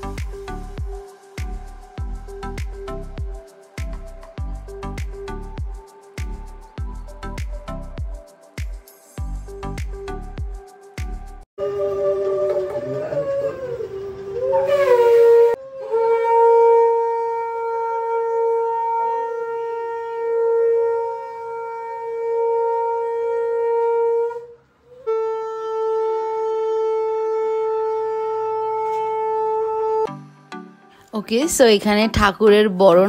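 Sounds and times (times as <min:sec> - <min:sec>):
conch shell blasts: 0:14.1 - 0:30.1.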